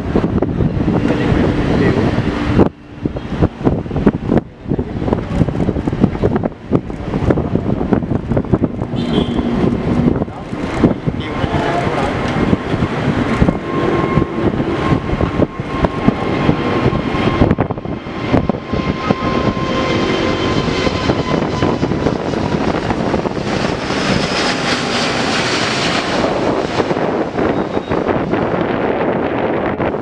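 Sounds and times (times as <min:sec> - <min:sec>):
jet engine roar: 0:00.0 - 0:30.0
wind buffeting microphone: 0:00.0 - 0:30.0.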